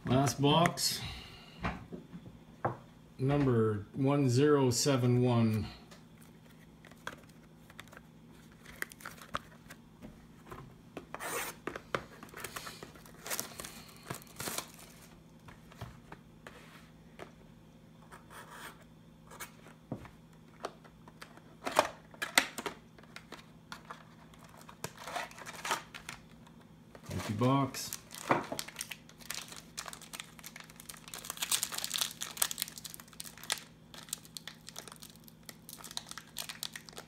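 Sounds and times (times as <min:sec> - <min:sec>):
cardboard tearing and rustling: 0:24.0 - 0:26.2, 0:27.1 - 0:37.0.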